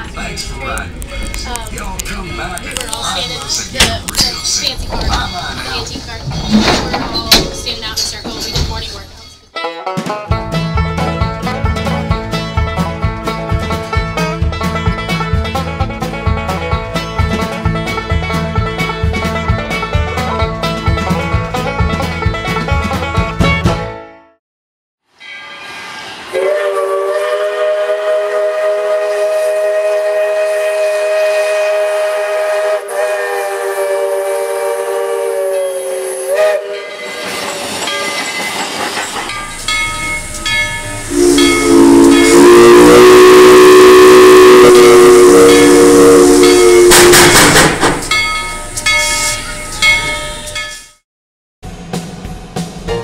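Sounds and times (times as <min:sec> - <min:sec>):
steam hissing: 0:25.5 - 0:50.6
steam locomotive whistle: 0:26.3 - 0:38.2, 0:39.4 - 0:47.5.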